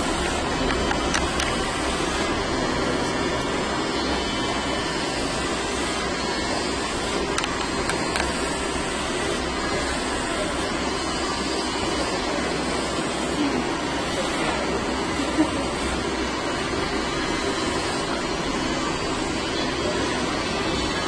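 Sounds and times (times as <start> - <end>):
electric hair clippers buzzing: 0.0 - 21.0.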